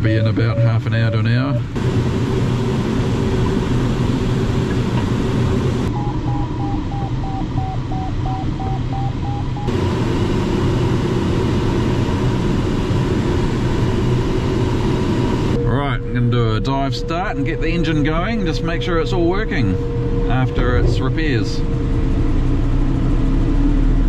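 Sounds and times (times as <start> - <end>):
short electronic beeps: 0.0 - 1.7, 5.9 - 9.7
airflow rushing around cockpit: 0.0 - 24.0.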